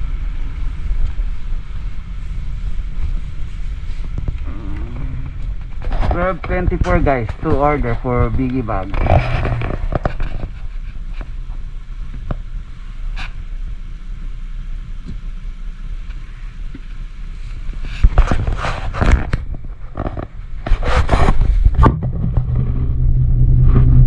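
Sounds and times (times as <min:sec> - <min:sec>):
scraping and rubbing noises: 0:00.0 - 0:12.4, 0:13.1 - 0:13.4, 0:17.3 - 0:24.0
windshield wipers sweeping: 0:00.0 - 0:13.5
car engine idling: 0:00.0 - 0:18.2.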